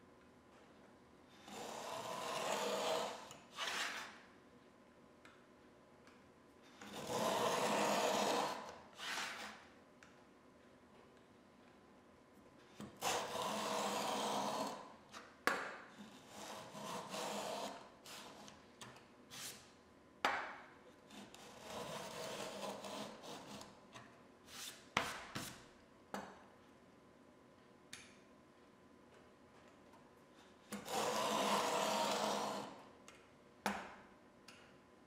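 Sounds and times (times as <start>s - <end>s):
plane blade shaving wood: 1.5s - 4.0s, 6.9s - 9.4s, 21.5s - 23.6s, 30.8s - 32.7s.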